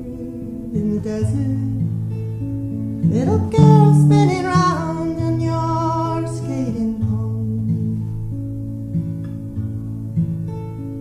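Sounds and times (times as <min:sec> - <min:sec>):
woman singing: 0:00.0 - 0:01.9, 0:03.1 - 0:08.0
acoustic guitar chords: 0:00.0 - 0:11.0.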